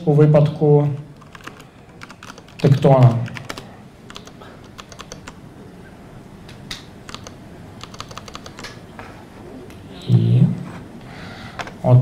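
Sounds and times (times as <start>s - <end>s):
laptop keyboard typing: 0.9s - 5.4s, 7.0s - 8.8s.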